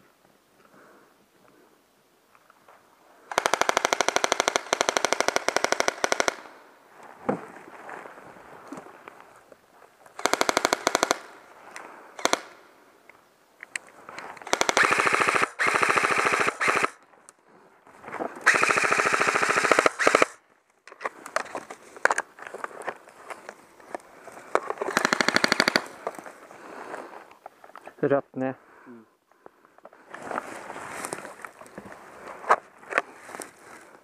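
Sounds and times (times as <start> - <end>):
airsoft guns firing bursts: 3.3 - 6.5, 10.2 - 11.4, 12.2 - 12.6, 14.4 - 17.0, 18.4 - 20.4, 24.8 - 26.0.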